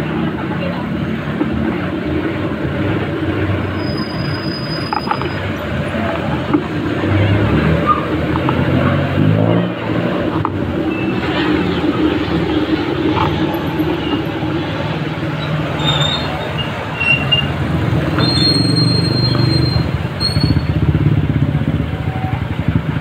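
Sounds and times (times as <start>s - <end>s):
vehicle engines running: 0.0s - 23.0s
short high squeals: 3.7s - 5.5s, 15.4s - 20.8s.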